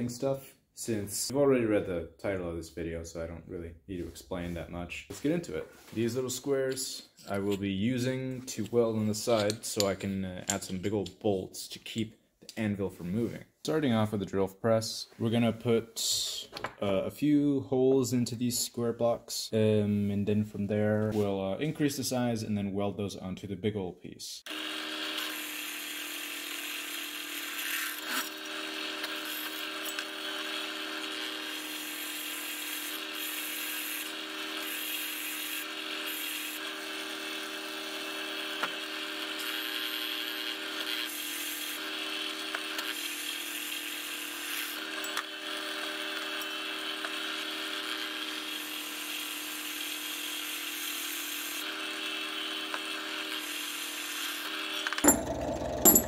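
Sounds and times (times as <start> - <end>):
drill press motor hum: 54.9 - 56.0
drill bit scraping metal: 55.0 - 56.0.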